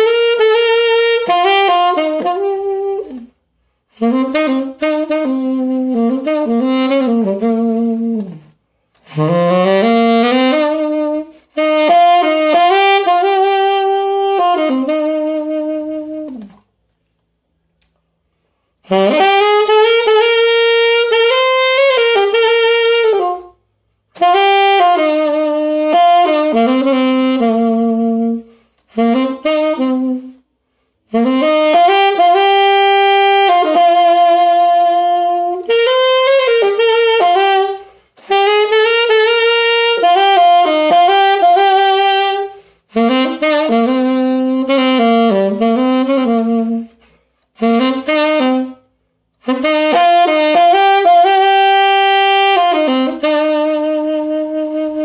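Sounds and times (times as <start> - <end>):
saxophone playing melody: 0.0 - 16.8, 17.5 - 55.0.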